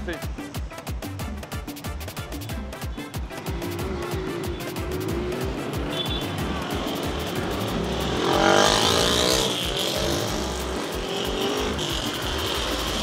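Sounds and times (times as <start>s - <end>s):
motorcycle engine revving: 3.2s - 13.0s
traffic passing close: 3.2s - 13.0s.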